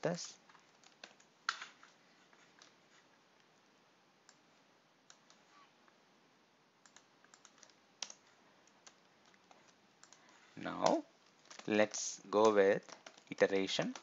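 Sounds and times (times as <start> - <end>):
computer keyboard keystrokes: 0.5 - 1.6, 6.8 - 14.0.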